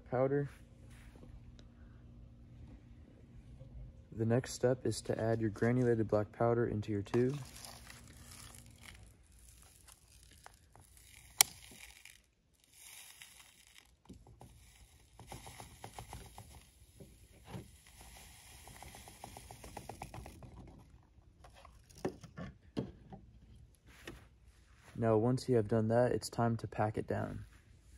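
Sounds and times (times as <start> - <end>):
trickling grains hissing: 7.5 - 20.4.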